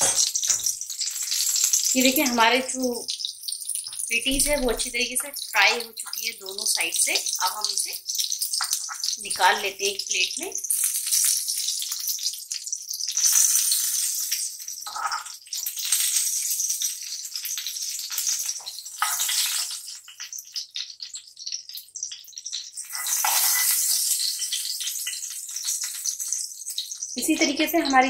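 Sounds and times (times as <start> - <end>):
oil sizzling in frying pan: 0.0 - 28.0
spoon scraping and clinking pan: 14.9 - 16.2, 18.2 - 19.8, 22.8 - 26.3.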